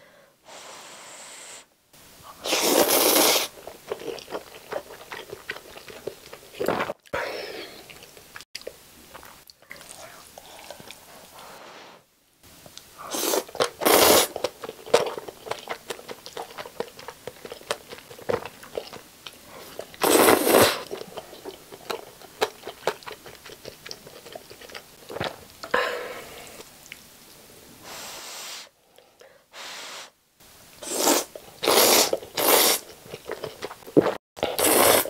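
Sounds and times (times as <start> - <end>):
noodles slurped: 2.4 - 7.1, 13.1 - 19.0, 19.6 - 25.4, 30.8 - 35.0
wet chewing and lip-smacking: 3.5 - 7.1, 13.4 - 20.0, 20.8 - 25.7, 31.8 - 34.2.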